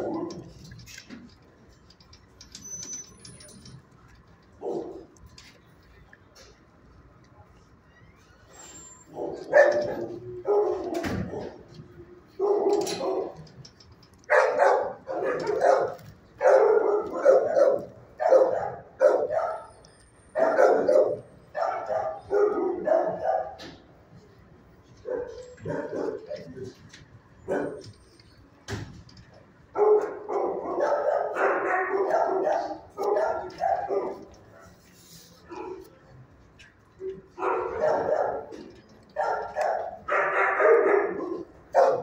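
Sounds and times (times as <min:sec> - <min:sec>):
dogs barking: 0:00.0 - 0:00.8, 0:04.6 - 0:05.2, 0:09.1 - 0:13.5, 0:14.2 - 0:23.8, 0:24.9 - 0:26.8, 0:27.4 - 0:28.0, 0:29.7 - 0:34.8, 0:35.4 - 0:36.0, 0:37.1 - 0:42.0.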